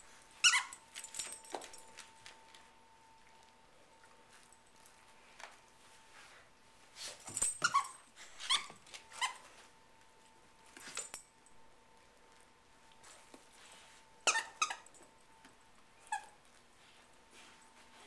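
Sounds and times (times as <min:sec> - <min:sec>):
squeaky toy squeaking: 0:00.4 - 0:00.8, 0:14.2 - 0:14.9.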